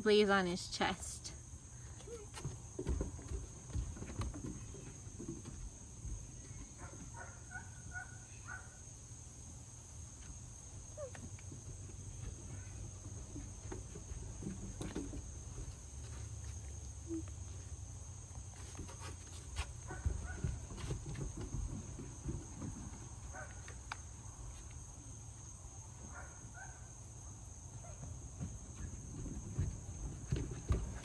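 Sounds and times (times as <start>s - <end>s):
insects droning: 0.0s - 31.0s
footsteps on wooden deck: 1.8s - 7.5s, 10.1s - 17.7s, 18.3s - 26.4s, 27.7s - 31.0s
puppy paws on wooden deck: 1.8s - 8.1s, 9.5s - 26.6s, 27.7s - 31.0s.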